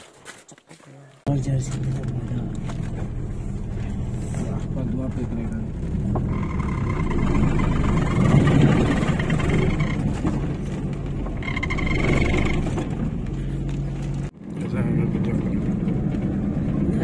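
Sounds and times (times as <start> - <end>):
tyre and road noise: 0.0 - 17.0
car engine running: 1.3 - 17.0
high pulsing tone: 6.2 - 10.1.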